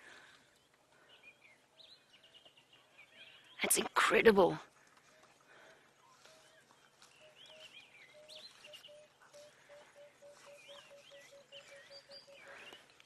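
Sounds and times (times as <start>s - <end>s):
low repeated bird-like note: 7.3s - 12.8s.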